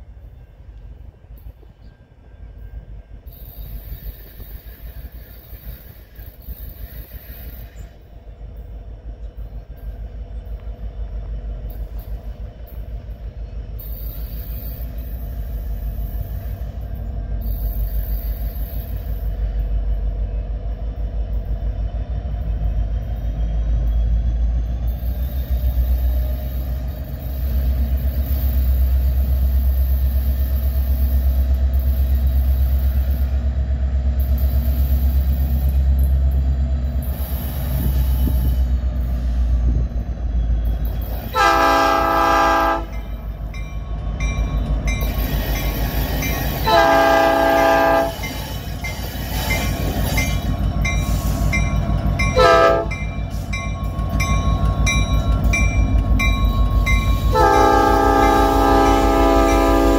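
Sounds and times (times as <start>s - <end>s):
diesel locomotive rumble: 0.0s - 59.9s
locomotive bell ringing: 8.5s - 20.3s, 40.3s - 59.9s
locomotive air horn blasts: 41.3s - 43.1s, 46.6s - 48.3s, 52.4s - 53.1s, 57.2s - 59.9s.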